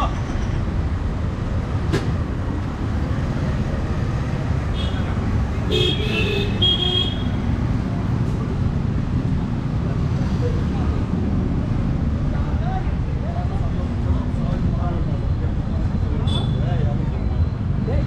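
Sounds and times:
street traffic rumble: 0.0s - 18.0s
vehicle horn short beeps: 16.3s - 16.6s.

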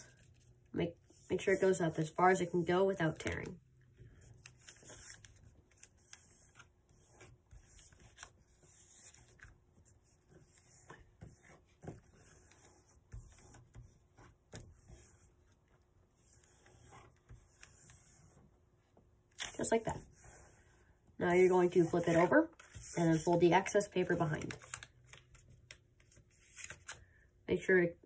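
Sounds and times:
paper rustling and crinkling: 21.4s - 27.0s.

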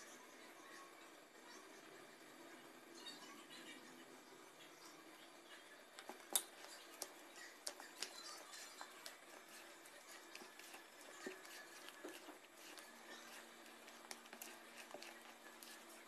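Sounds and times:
stirring thick batter: 5.9s - 16.0s.

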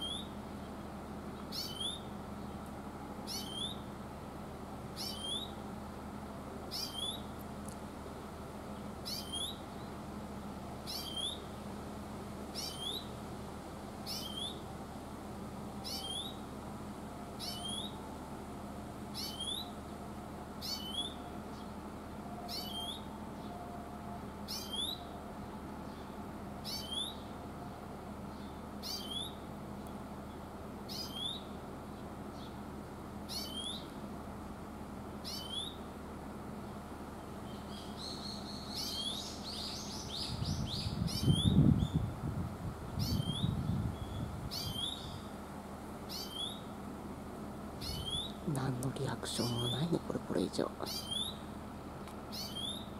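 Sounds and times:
bird twittering: 1.5s - 2.1s, 3.3s - 3.8s, 5.0s - 5.5s, 6.7s - 7.3s, 9.0s - 9.6s, 10.8s - 11.5s, 12.6s - 13.1s, 14.0s - 14.6s, 15.8s - 16.4s, 17.4s - 18.0s, 19.2s - 19.8s, 20.6s - 21.2s, 22.5s - 23.1s, 24.5s - 25.0s, 26.6s - 27.2s, 28.4s - 29.4s, 30.9s - 31.5s, 33.3s - 33.9s, 35.2s - 35.8s, 37.5s - 42.0s, 43.0s - 45.3s, 46.1s - 46.7s, 47.8s - 48.4s, 50.8s - 51.4s, 52.3s - 52.9s
greenfinch rising call: 10.9s - 11.5s.

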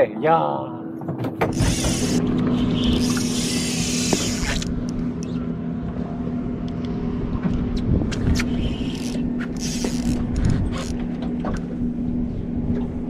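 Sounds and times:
boat motor humming: 0.9s - 13.0s
fishing reel clicks and knocks: 1.5s - 2.2s, 2.8s - 5.0s, 8.4s - 11.0s.

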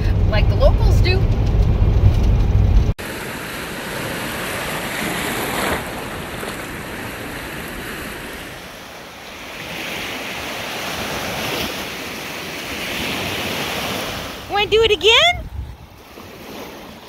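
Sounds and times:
waves washing over pebble shore: 3.0s - 14.5s
wind on microphone: 4.1s - 17.0s.

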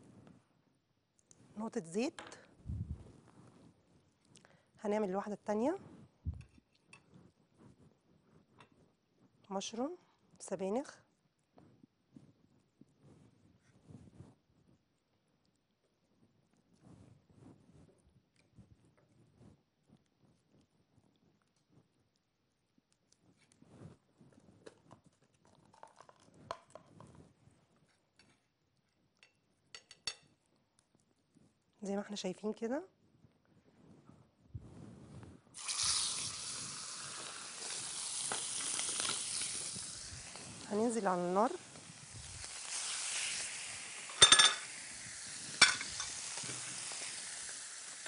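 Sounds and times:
soft rustling and small clicks: 1.1s - 1.6s, 2.3s - 4.6s, 5.8s - 35.4s
chicken sizzling in frying pan: 35.6s - 48.0s.

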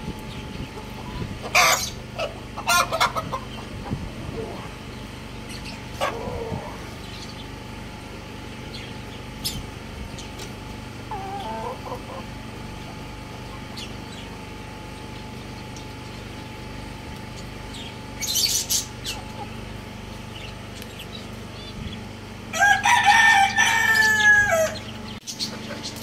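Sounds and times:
rooster clucking: 0.8s - 4.8s, 5.8s - 7.0s, 11.0s - 13.9s, 22.5s - 26.0s.

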